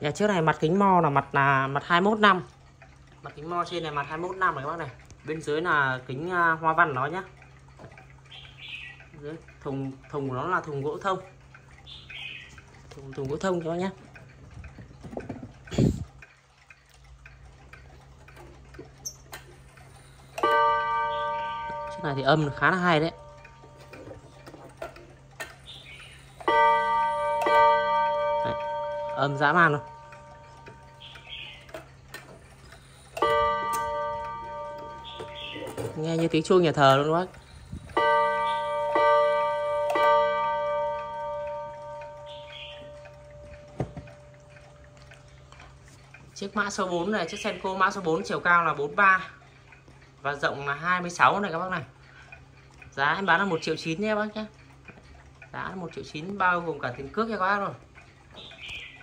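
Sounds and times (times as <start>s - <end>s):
clock ticking faintly: 0.0s - 59.0s
clock gong ringing: 20.4s - 24.2s, 26.4s - 31.2s, 33.1s - 44.8s.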